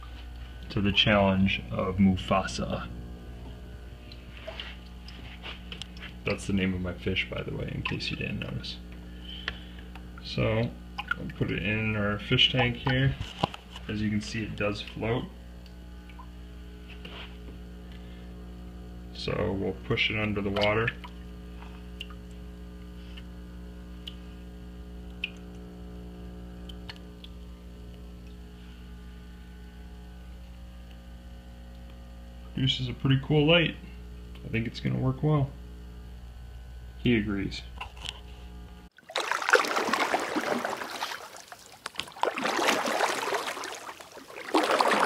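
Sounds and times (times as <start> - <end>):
low electrical hum: 0.0 - 45.0
small water sounds: 3.4 - 16.6, 19.9 - 24.4, 25.0 - 28.9, 38.9 - 45.0
water splashing and rushing: 39.0 - 45.0.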